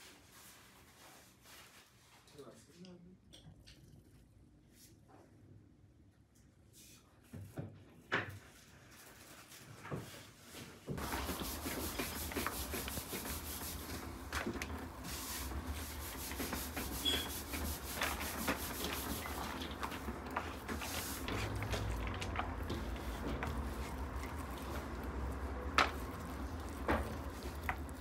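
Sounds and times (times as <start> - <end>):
hands squeezing meat filling: 18.4 - 28.0.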